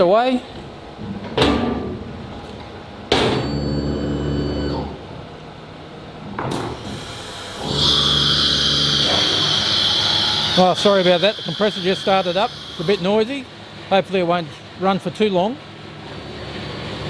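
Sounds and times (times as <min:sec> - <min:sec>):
air compressor running: 0:06.6 - 0:13.8
sharp bursts of air: 0:06.8 - 0:13.2.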